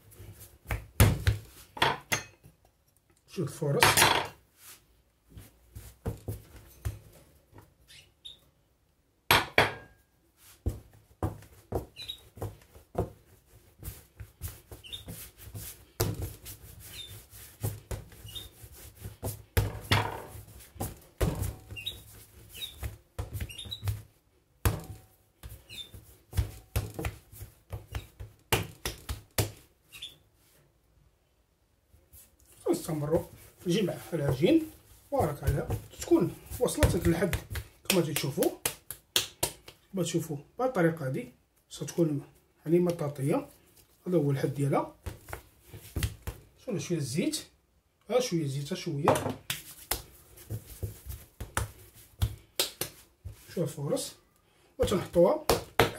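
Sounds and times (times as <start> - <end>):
dough slapping and thumping: 0.1 - 2.1, 5.3 - 7.2, 9.3 - 29.8, 32.1 - 39.9, 44.6 - 46.6, 49.0 - 53.7, 54.8 - 55.9.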